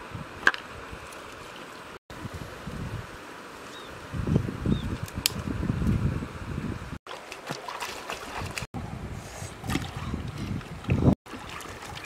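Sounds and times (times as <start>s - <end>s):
feet splashing through water: 7.1s - 8.7s, 9.6s - 12.0s.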